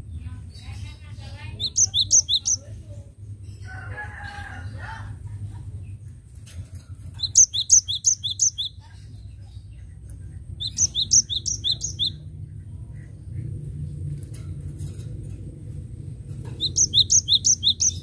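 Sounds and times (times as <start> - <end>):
bird singing ringing notes: 1.5 - 2.6, 7.2 - 8.8, 10.6 - 12.3, 16.4 - 18.0.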